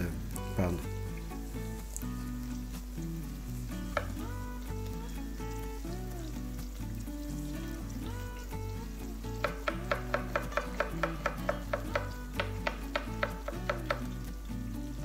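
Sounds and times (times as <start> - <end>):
background music: 0.0 - 15.0
knife chopping on wooden board: 9.4 - 14.1.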